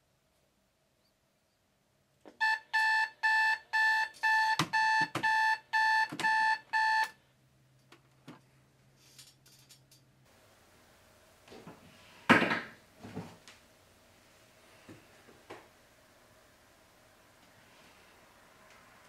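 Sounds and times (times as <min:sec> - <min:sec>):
alarm clock beeping: 0:02.4 - 0:07.1.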